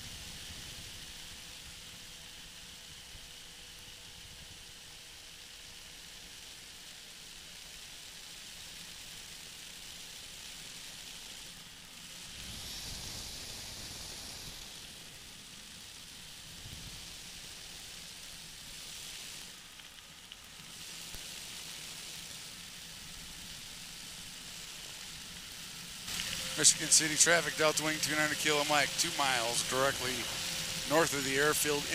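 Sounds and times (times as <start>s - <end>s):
wind hiss: 0.0s - 31.9s
microlight engine noise: 10.5s - 19.7s, 20.5s - 31.9s.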